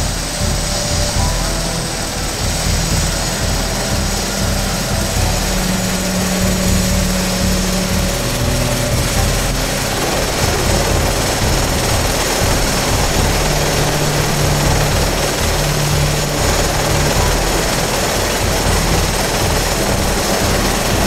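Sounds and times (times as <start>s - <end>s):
helicopter rotor beat: 0.0s - 21.0s
helicopter turbine rushing: 0.0s - 21.0s.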